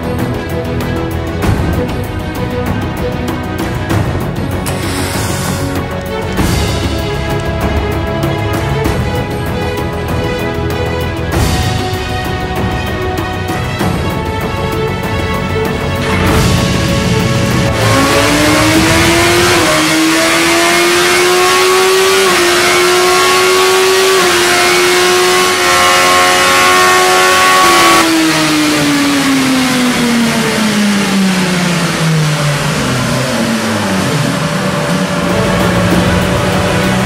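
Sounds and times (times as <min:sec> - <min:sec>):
motorcycle engine revving: 0:16.1 - 0:37.0.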